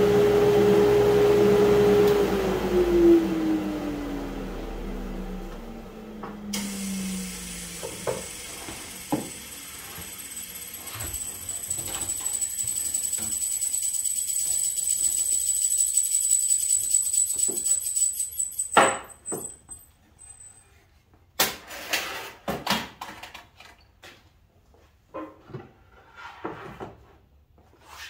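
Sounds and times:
miter saw blade winding down: 0:06.5 - 0:18.8.

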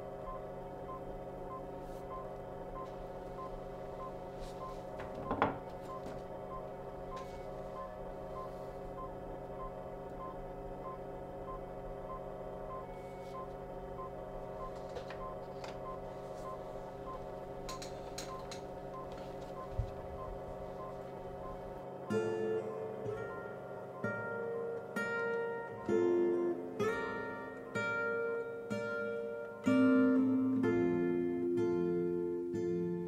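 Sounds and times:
electronic equipment hum: 0:00.0 - 0:33.0.

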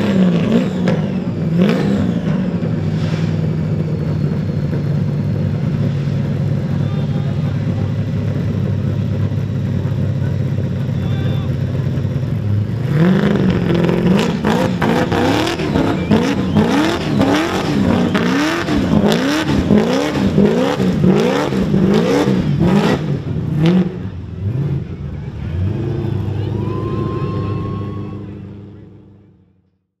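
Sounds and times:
car engine revving hard: 0:00.0 - 0:04.0, 0:11.7 - 0:28.9.

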